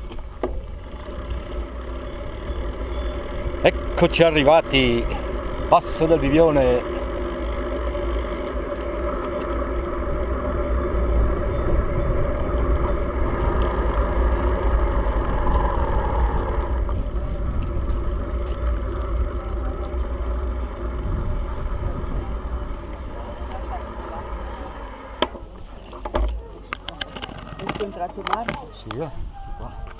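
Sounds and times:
vehicle engine running: 0.0 - 28.9
wind rumbling on microphone: 0.0 - 29.9.

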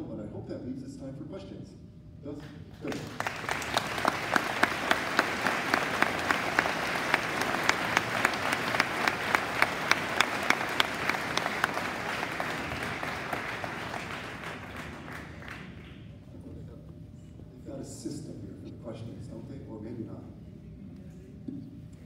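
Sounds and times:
audience applauding: 2.8 - 16.1
close sharp hand claps: 2.8 - 16.1.

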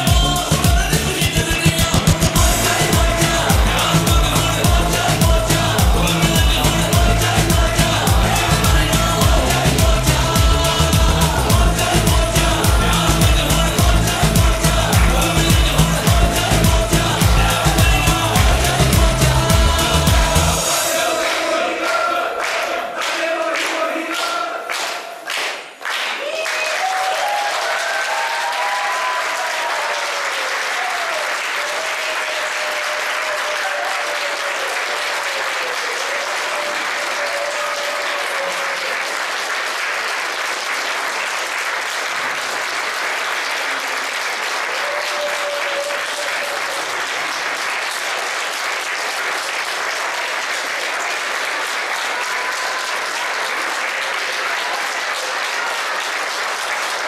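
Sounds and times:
voices calling out: 0.0 - 22.3
audience applauding: 0.0 - 57.0.

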